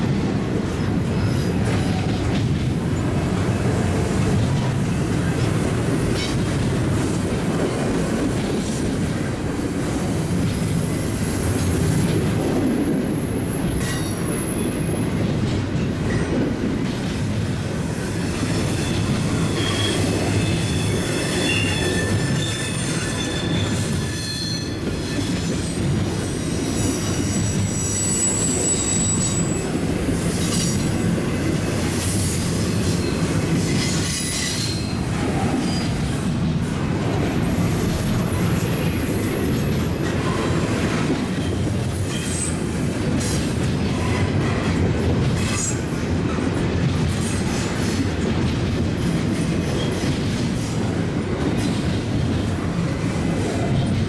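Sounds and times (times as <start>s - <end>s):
steel wheels rumbling on rail: 0.0s - 54.0s
high-pitched wheel squeals: 16.6s - 25.9s, 26.5s - 29.7s.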